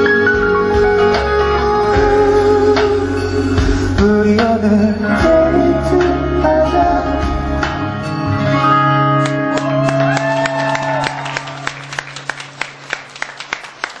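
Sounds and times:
vocal group singing live: 0:00.0 - 0:08.0
backing music: 0:00.0 - 0:14.0
audience clapping: 0:09.2 - 0:14.0.

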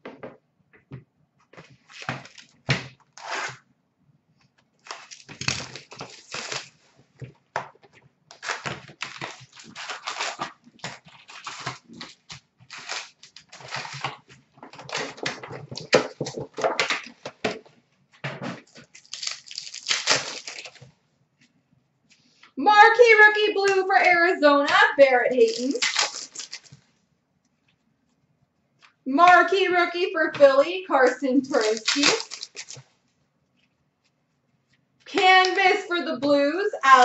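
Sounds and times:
card pack wrappers crinkling: 0:01.8 - 0:03.5, 0:04.8 - 0:06.8, 0:08.3 - 0:17.4, 0:18.6 - 0:20.9, 0:25.3 - 0:26.8, 0:31.5 - 0:32.9.

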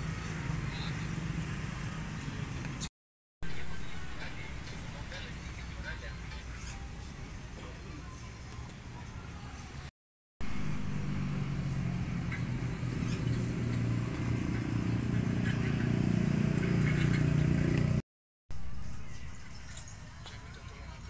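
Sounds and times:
vehicle engine running: 0:10.4 - 0:18.0.

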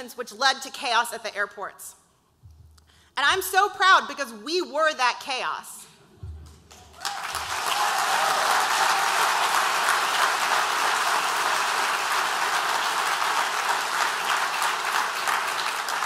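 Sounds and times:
audience applauding: 0:06.7 - 0:16.0.

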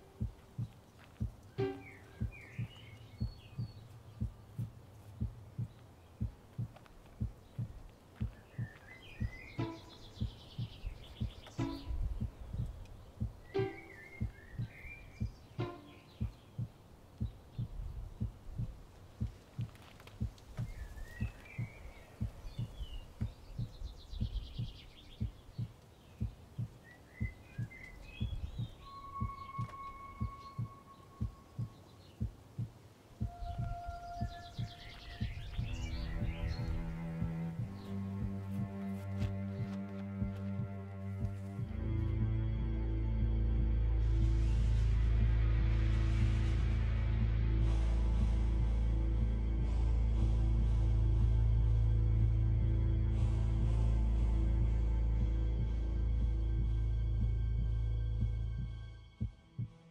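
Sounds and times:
birds chirping faintly: 0:00.0 - 0:59.9
steady low hum: 0:00.0 - 0:59.9
heartbeat-like double thump: 0:00.2 - 0:01.4, 0:02.2 - 0:38.7, 0:54.6 - 0:59.8.

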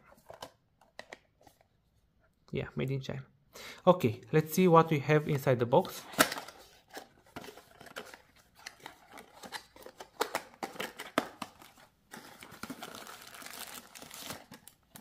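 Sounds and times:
plastic wrapping crinkling: 0:07.0 - 0:15.0.

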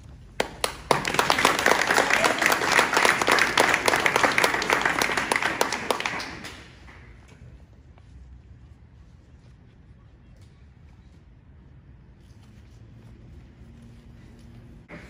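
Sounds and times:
people applauding: 0:00.3 - 0:07.3.

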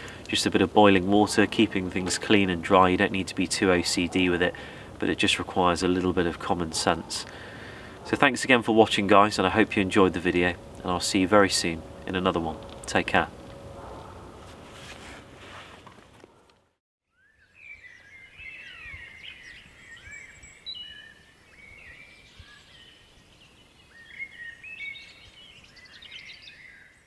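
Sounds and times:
small birds chirping and trilling: 0:17.1 - 0:27.0.

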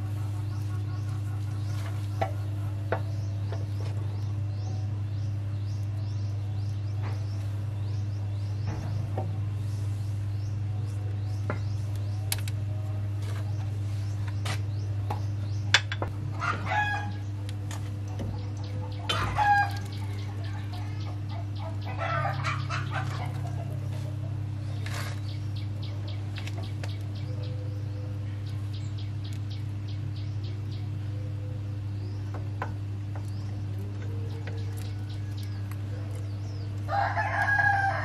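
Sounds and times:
low machine hum: 0:00.0 - 0:38.0
rooster crowing: 0:21.9 - 0:22.8, 0:36.9 - 0:38.0.

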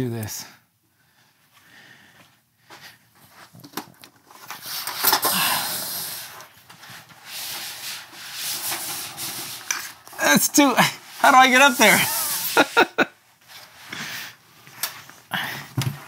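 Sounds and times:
banner sliding hiss: 0:04.6 - 0:10.0, 0:10.6 - 0:13.0.

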